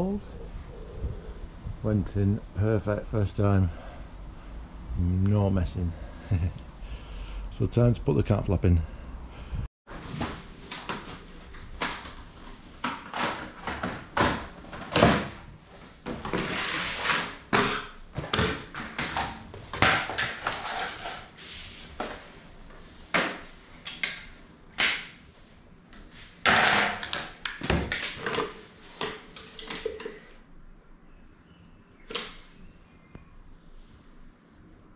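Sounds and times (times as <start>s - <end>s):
plastic parts clattering: 16.4s - 21.3s.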